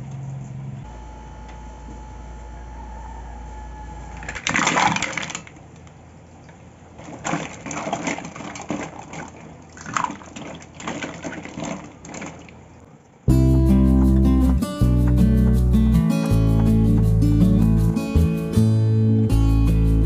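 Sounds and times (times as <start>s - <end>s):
shells and ice clinking in bowl: 4.2s - 5.6s
water sloshing: 6.5s - 13.2s.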